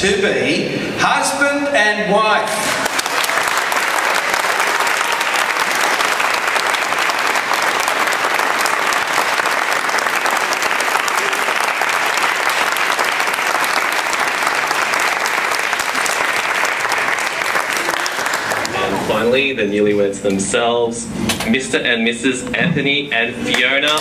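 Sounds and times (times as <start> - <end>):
crowd applauding: 2.6 - 19.3.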